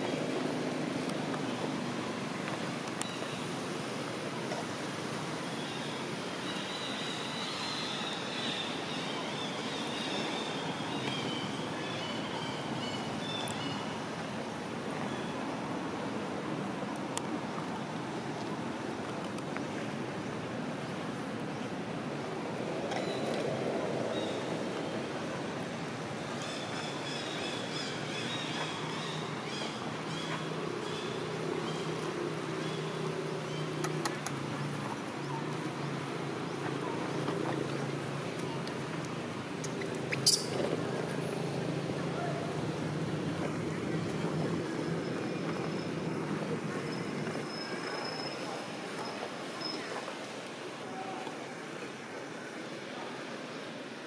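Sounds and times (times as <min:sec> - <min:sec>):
outdoor background noise: 0:00.0 - 0:54.0
baby monkey squeaking calls: 0:40.2 - 0:40.5.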